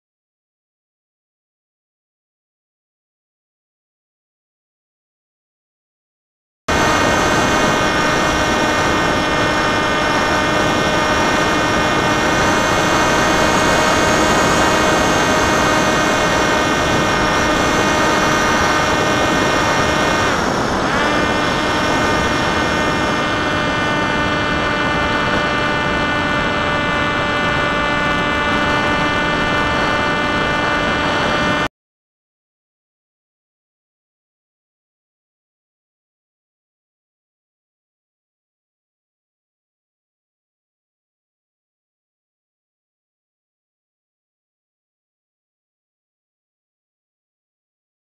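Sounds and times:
electric motor and propeller whining: 6.7 - 31.7
rushing wind: 6.7 - 31.7.

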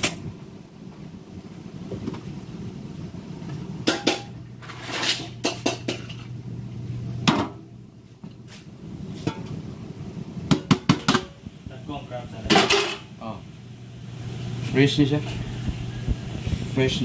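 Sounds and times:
metal pot and lid clanking: 3.8 - 6.3, 9.2 - 9.6, 10.5 - 11.4, 12.5 - 13.1.

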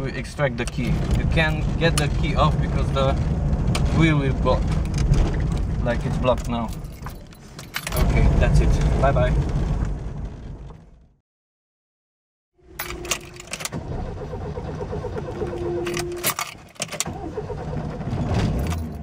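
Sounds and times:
keys jangling: 6.4 - 8.0, 12.8 - 13.7, 15.8 - 17.1, 18.5 - 19.0
ignition key clicking: 15.5 - 17.3.

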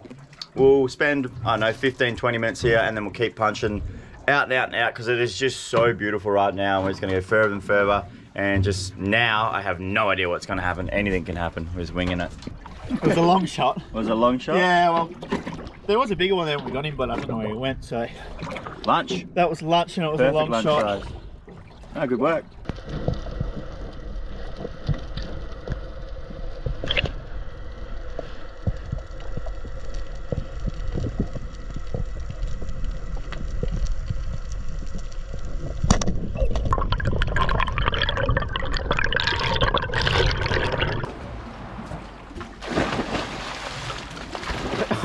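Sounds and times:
gurgling water: 0.0 - 4.3, 6.4 - 19.8, 20.6 - 45.0
low underwater rumble: 6.0 - 13.2, 20.9 - 43.2
dog splashing into water: 42.6 - 45.0.

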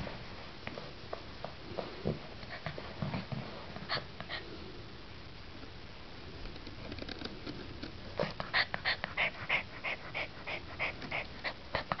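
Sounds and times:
puppy breathing fast: 8.3 - 12.0.

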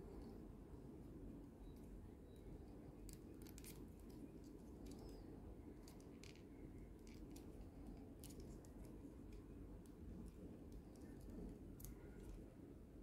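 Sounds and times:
low room hum: 0.0 - 13.0
plastic toy parts clicking: 5.8 - 7.6.

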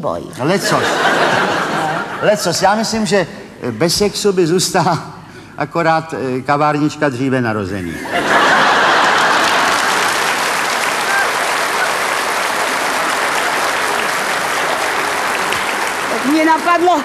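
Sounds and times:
audience applauding: 8.2 - 17.0.

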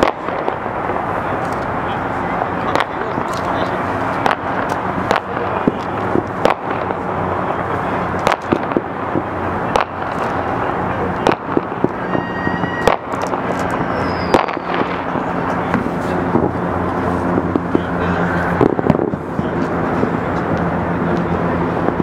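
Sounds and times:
city background noise: 0.0 - 22.0
distant fireworks bangs: 0.0 - 22.0
brief high tone: 12.0 - 12.9, 13.7 - 14.8.

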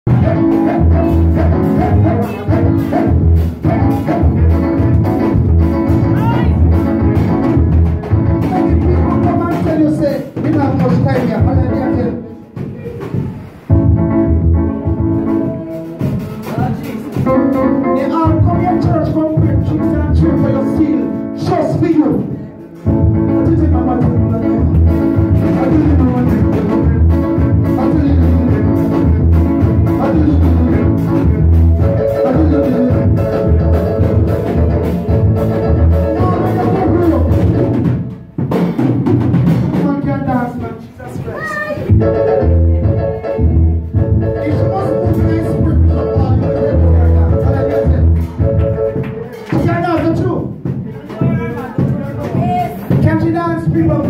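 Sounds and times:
loud music with deep bass: 0.1 - 9.6, 22.4 - 37.9
steady drum beat: 0.1 - 54.0.

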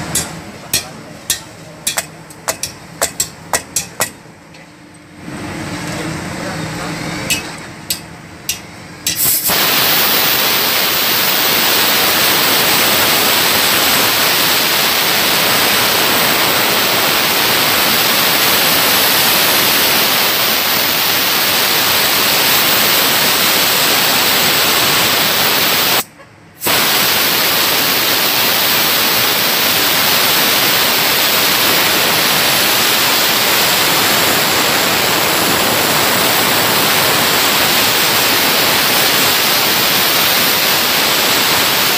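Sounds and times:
compressed air blow gun hissing: 9.1 - 26.0, 26.6 - 41.9.

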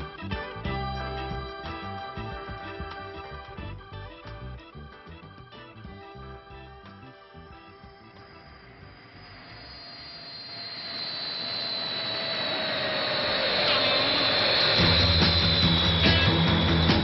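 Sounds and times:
jet engine whine: 5.9 - 17.0
rock band drums and guitar: 14.8 - 17.0.

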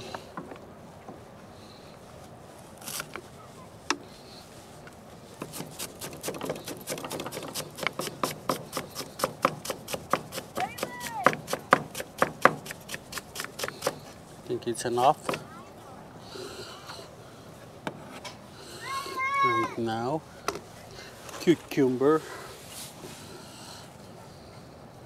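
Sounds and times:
knife chopping on cutting board: 5.4 - 14.0.

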